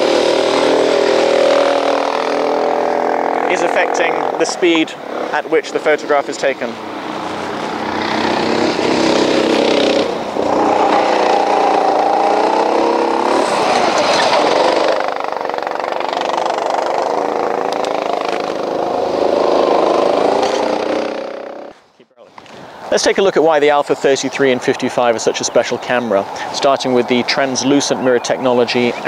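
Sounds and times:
go-kart engines passing: 0.0 - 21.8.

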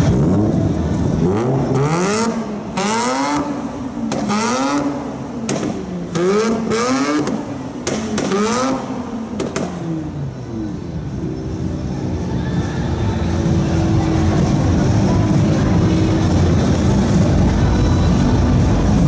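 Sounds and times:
rotary engine revving: 0.0 - 9.8
exhaust backfire pops: 4.1 - 6.6, 7.2 - 8.8, 9.4 - 10.0.

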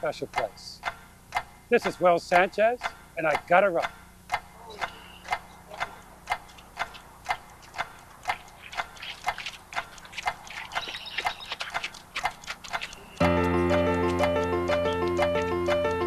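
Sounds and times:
steady clock-like ticking: 0.0 - 16.0.

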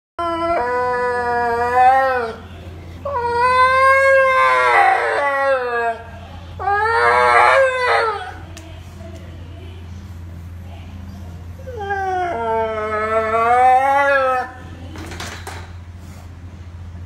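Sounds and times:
husky howling: 0.2 - 8.5, 11.6 - 14.7.

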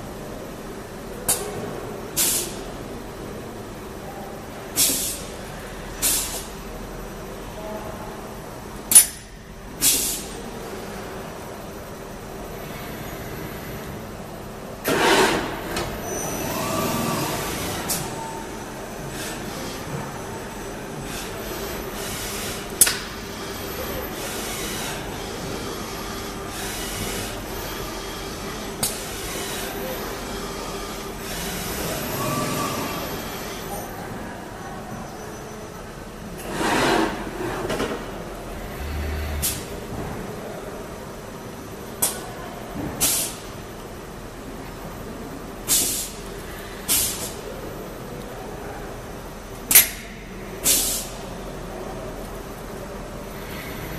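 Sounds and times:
compressed air hisses: 9.8 - 10.3, 45.7 - 46.2, 46.9 - 47.4, 50.6 - 51.2.

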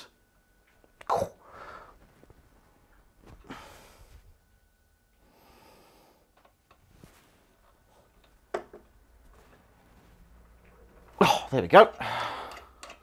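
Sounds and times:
soft nasal breaths: 5.2 - 8.2.

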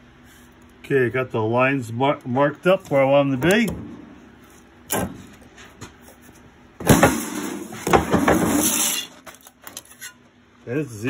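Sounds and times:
rough metal scraping: 7.1 - 9.2.

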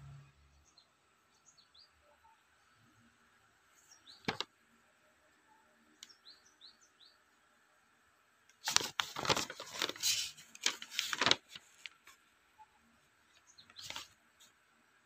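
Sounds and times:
paper pages rustling: 4.2 - 4.5, 8.6 - 12.2, 13.3 - 14.6.

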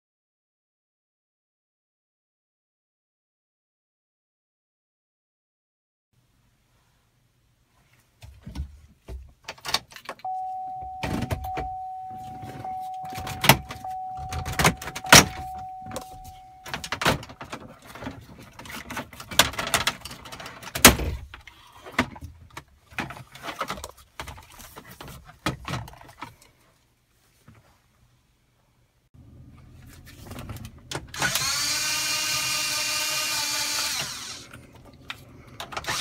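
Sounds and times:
steady tone: 10.3 - 17.3.

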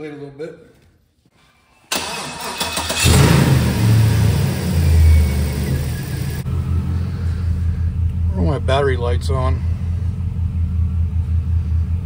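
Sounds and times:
car engine revving then idling: 2.1 - 8.8.

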